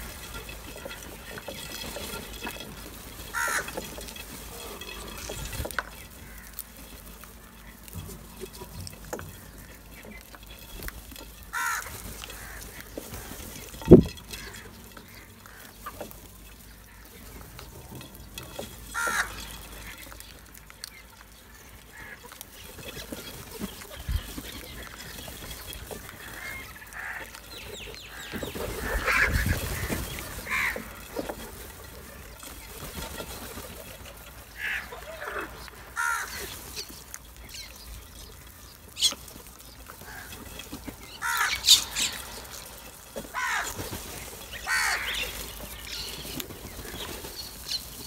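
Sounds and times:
wingbeats: 0:00.0 - 0:48.0
crows cawing: 0:03.2 - 0:08.6, 0:11.4 - 0:17.4, 0:18.8 - 0:20.6, 0:21.4 - 0:22.9, 0:24.0 - 0:32.4, 0:34.5 - 0:37.1, 0:39.8 - 0:46.2.

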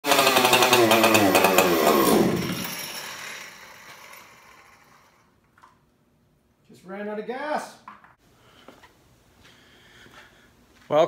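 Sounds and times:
chainsaw engine running and dying: 0:00.0 - 0:05.1.

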